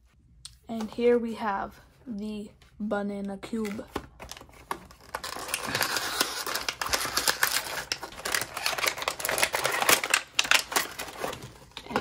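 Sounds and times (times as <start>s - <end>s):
plastic crinkles and clicks: 3.5s - 12.0s.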